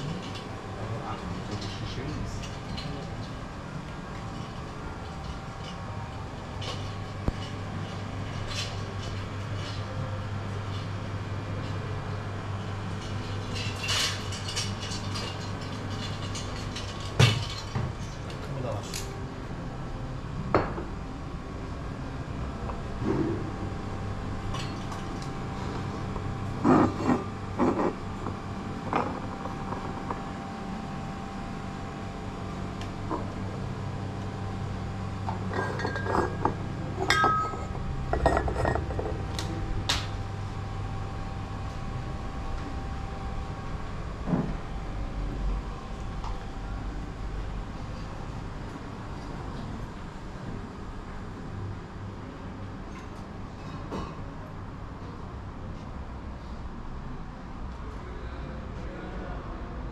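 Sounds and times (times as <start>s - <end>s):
low hum: 0.0s - 53.6s
clinks and knocks: 35.3s - 39.1s.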